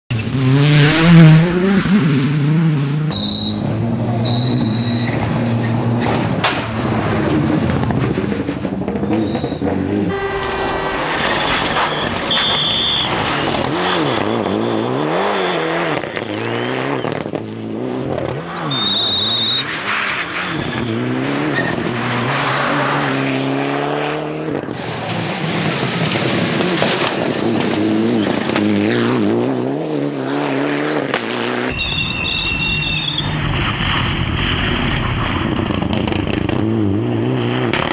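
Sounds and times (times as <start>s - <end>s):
rally car engine revving: 0.1s - 37.9s
high-pitched squeals: 9.0s - 17.2s, 18.6s - 21.9s, 31.7s - 35.6s.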